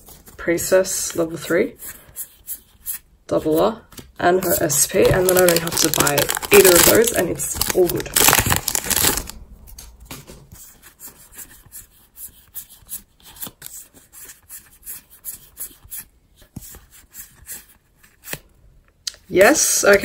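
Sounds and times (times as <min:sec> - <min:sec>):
cards sliding and flicking: 0:12.5 - 0:18.5.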